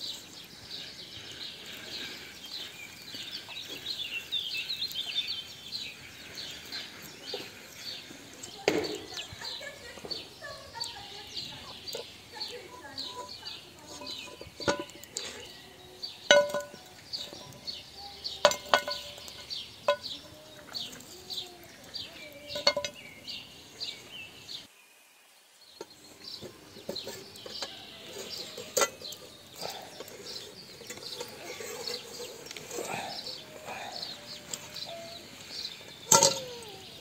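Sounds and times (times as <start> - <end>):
birds chirping: 0.0 - 37.0
metal lid and spatula clanking: 13.0 - 15.1, 16.3 - 17.7, 18.4 - 20.1, 22.5 - 23.0, 26.8 - 32.9, 36.1 - 36.7.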